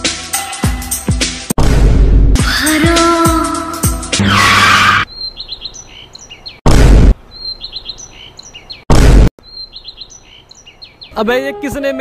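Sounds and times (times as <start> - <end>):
background music: 0.0 - 1.5, 2.4 - 4.6, 11.2 - 12.0
loud boom: 1.6 - 2.4
birds chirping: 4.2 - 12.0.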